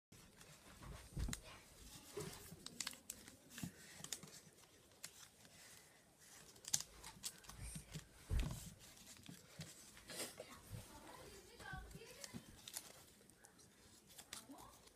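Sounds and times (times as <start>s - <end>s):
paper crinkling and rustling: 0.2s - 14.9s
soft thumps on table: 8.3s - 8.6s.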